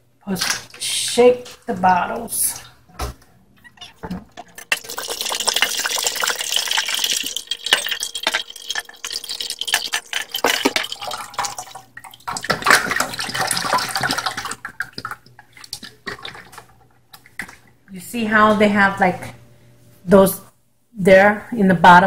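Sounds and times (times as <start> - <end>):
thick liquid splashing into pot: 4.1 - 17.7.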